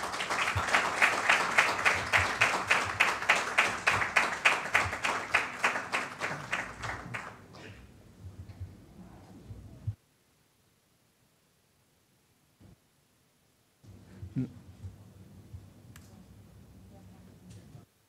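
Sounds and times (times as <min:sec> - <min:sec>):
person clapping steady beat: 0:00.0 - 0:07.4
audience applauding: 0:00.0 - 0:07.6.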